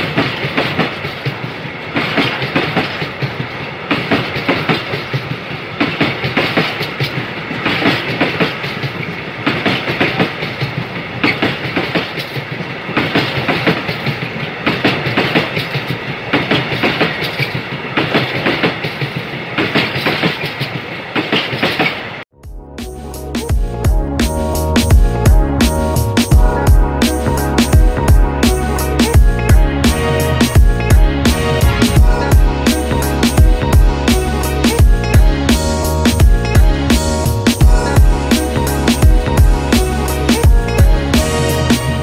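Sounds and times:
train wheels clicking over rail joints: 0:00.0 - 0:22.2
train rolling rumble: 0:00.0 - 0:42.0.

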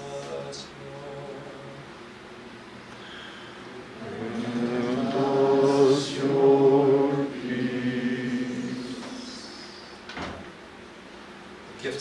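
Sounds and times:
voices singing a slow chant: 0:03.7 - 0:10.0.

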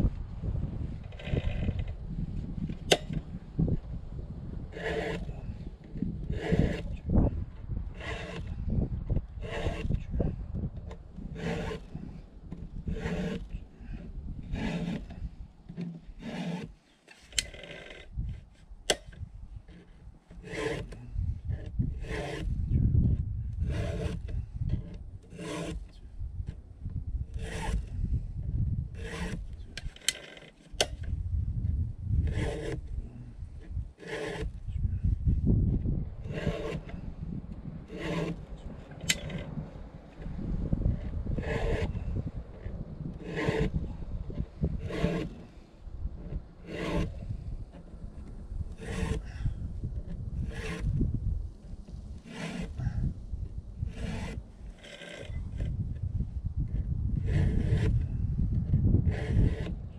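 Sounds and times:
wind rumble on microphone: 0:00.0 - 0:16.8, 0:17.4 - 0:30.0, 0:30.7 - 0:59.9
file rasping on chainsaw chain: 0:04.7 - 0:05.4, 0:06.3 - 0:06.9, 0:08.0 - 0:08.5, 0:09.4 - 0:10.0, 0:11.2 - 0:18.0, 0:19.7 - 0:21.0, 0:22.0 - 0:22.5, 0:23.6 - 0:26.0, 0:27.3 - 0:27.9, 0:29.0 - 0:31.0, 0:32.2 - 0:32.8, 0:33.7 - 0:34.6, 0:36.3 - 0:37.0, 0:37.9 - 0:39.6, 0:40.9 - 0:45.6, 0:46.2 - 0:51.0, 0:52.2 - 0:53.0, 0:53.9 - 0:55.7, 0:57.2 - 0:58.0, 0:59.0 - 0:59.8.

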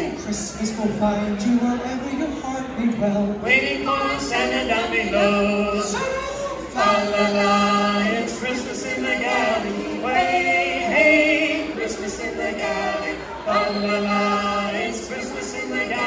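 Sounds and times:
choir singing in harmony: 0:03.4 - 0:16.0.

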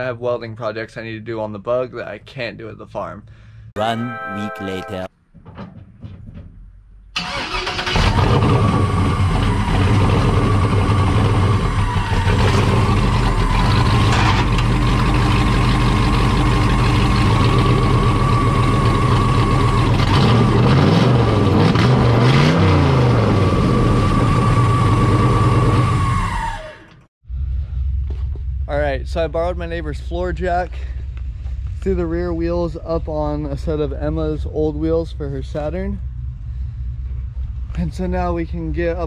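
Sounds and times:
car engine revving: 0:07.3 - 0:26.2
steady whine: 0:08.9 - 0:20.7.

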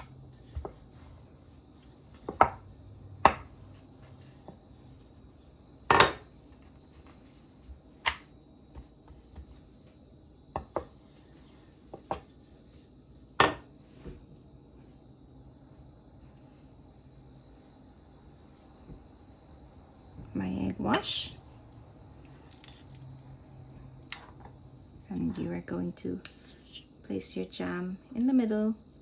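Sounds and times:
rolling pin knocking on wooden board: 0:02.2 - 0:03.6, 0:10.5 - 0:11.0.

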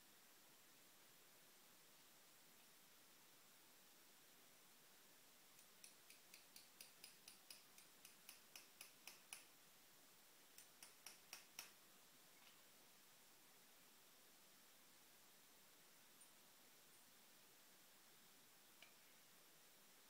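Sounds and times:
hammer tapping on metal: 0:05.8 - 0:09.5, 0:10.6 - 0:11.8.

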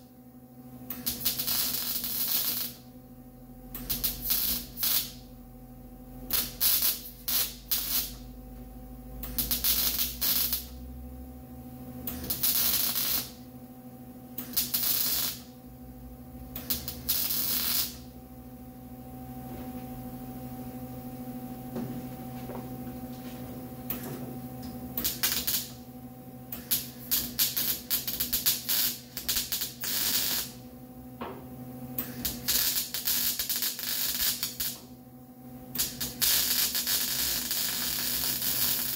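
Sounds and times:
welder hum: 0:00.0 - 0:38.9
welder sizzling crackles: 0:00.9 - 0:02.9, 0:03.8 - 0:05.3, 0:06.3 - 0:08.3, 0:09.2 - 0:10.8, 0:12.1 - 0:13.4, 0:14.4 - 0:15.6, 0:16.6 - 0:18.1, 0:25.0 - 0:25.9, 0:26.5 - 0:30.6, 0:32.0 - 0:35.0, 0:35.7 - 0:38.9.

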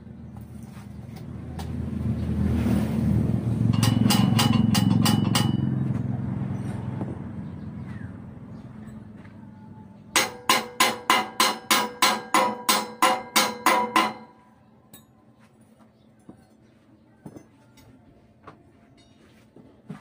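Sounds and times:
hammer striking steel: 0:03.7 - 0:06.0, 0:10.2 - 0:15.1.

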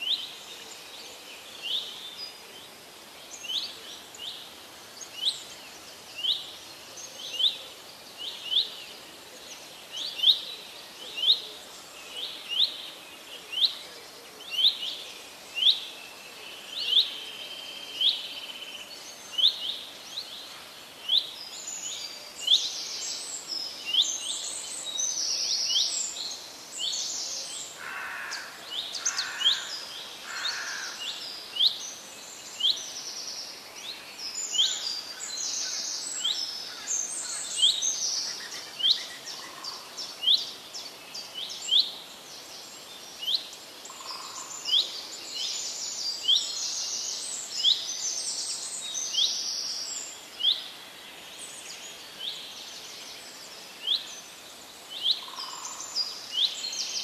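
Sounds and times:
steady outdoor hiss: 0:00.0 - 0:57.0.

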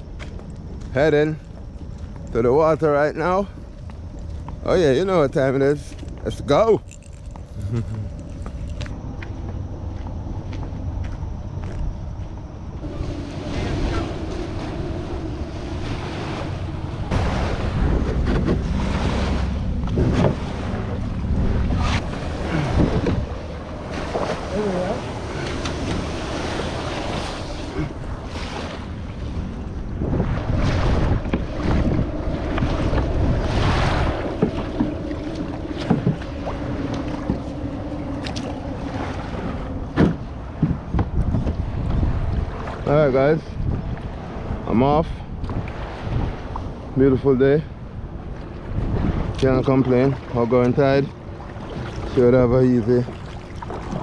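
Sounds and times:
wind buffeting microphone: 0:00.0 - 0:54.0
small waves washing on sand: 0:12.8 - 0:40.9
paddle knocking against hull: 0:17.2 - 0:21.1, 0:34.0 - 0:37.6, 0:39.1 - 0:42.1.

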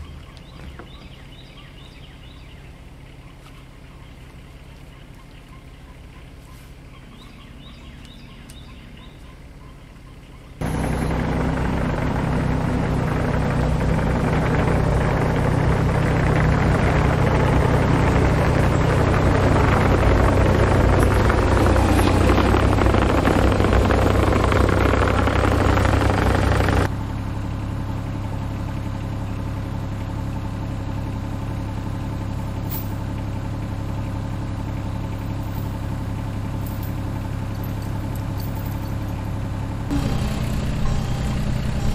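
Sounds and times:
diesel engine running: 0:00.0 - 0:41.9
machine noise: 0:10.6 - 0:26.9, 0:39.9 - 0:41.9.

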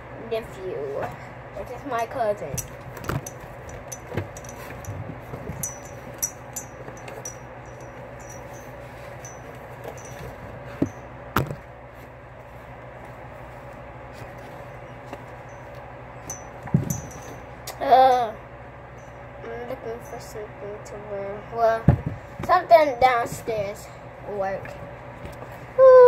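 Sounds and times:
steady hum: 0:00.0 - 0:26.0
objects knocking and clinking: 0:02.6 - 0:11.6, 0:16.2 - 0:17.5.

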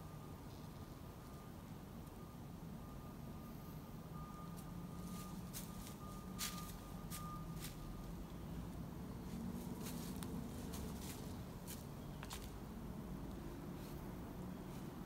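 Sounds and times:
distant road traffic hum: 0:00.0 - 0:15.0
footsteps crunching dry leaves: 0:05.0 - 0:07.9, 0:09.3 - 0:12.6.

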